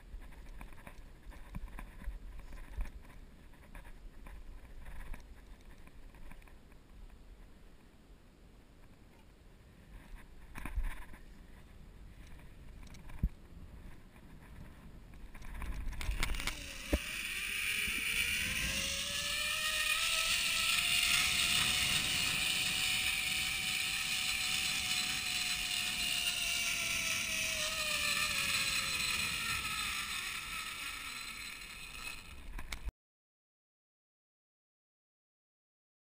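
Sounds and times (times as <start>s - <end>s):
zip line pulleys whining: 15.3s - 32.9s.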